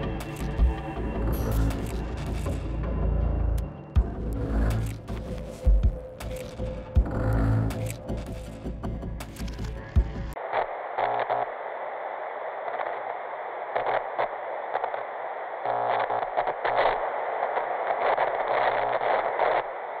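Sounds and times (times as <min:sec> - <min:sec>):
glitchy crackles: 0:00.0 - 0:02.7, 0:04.0 - 0:20.0
low electronic buzzes: 0:00.0 - 0:20.0
television static hiss: 0:10.4 - 0:20.0.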